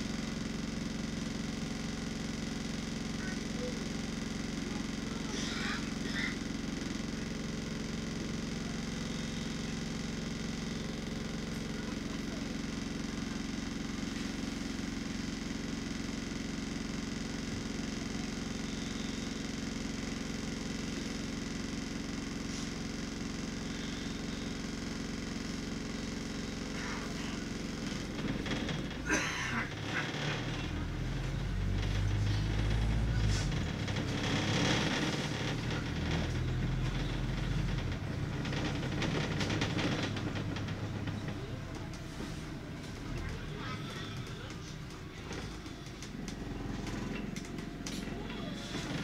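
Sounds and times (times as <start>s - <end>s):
bus engine idling: 0.0s - 49.0s
road rumble: 25.6s - 49.0s
windows rattling: 27.4s - 44.6s.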